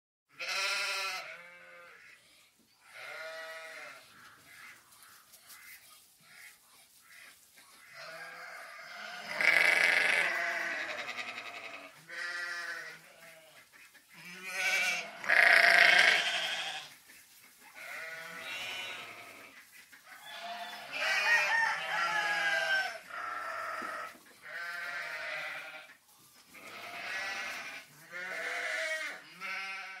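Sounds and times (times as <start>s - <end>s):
sheep bleating: 0.3s - 2.1s, 2.9s - 4.8s, 7.9s - 13.6s, 14.2s - 16.9s, 17.8s - 19.6s, 20.2s - 25.9s, 26.6s - 30.0s.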